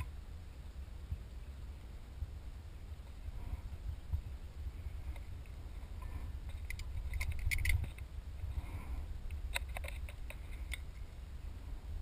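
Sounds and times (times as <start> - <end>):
metallic clicks of brake parts: 6.5 - 8.1.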